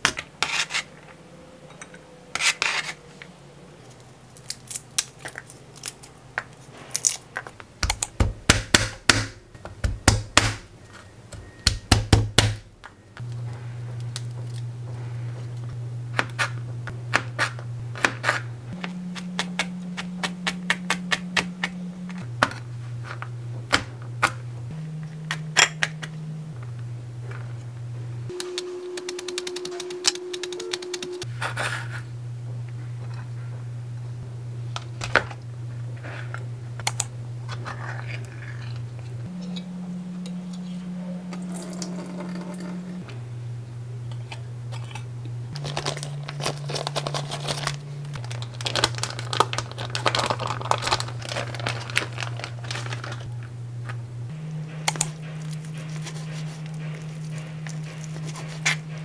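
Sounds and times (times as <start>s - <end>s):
garlic cloves being peeled: 3.8s - 12.6s, 15.6s - 24.4s, 28.3s - 32.0s, 44.1s - 59.0s.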